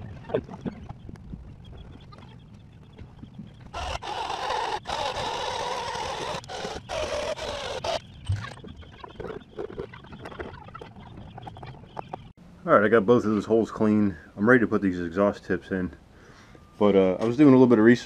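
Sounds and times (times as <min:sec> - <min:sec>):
power tool grinding: 0:03.7 - 0:08.1.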